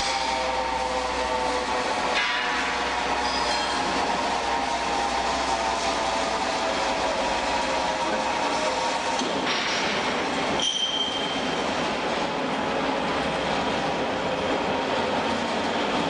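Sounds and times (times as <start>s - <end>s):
machinery hum: 0.0s - 16.0s
machinery whining tones: 0.0s - 16.0s
metal clank: 2.1s - 3.8s.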